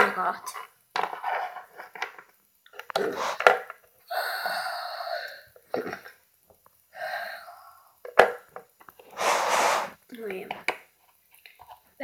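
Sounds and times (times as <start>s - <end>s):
person making drawn-out sounds: 4.1s - 5.5s, 7.0s - 8.0s
plastic toy knocking on floor: 8.1s - 8.7s.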